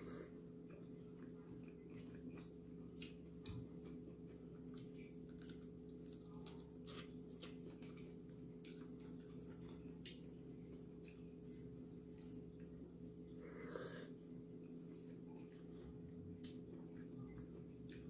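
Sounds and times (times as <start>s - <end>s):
steady low hum: 0.0s - 18.0s
chewing clicks: 0.6s - 12.7s, 16.4s - 18.0s.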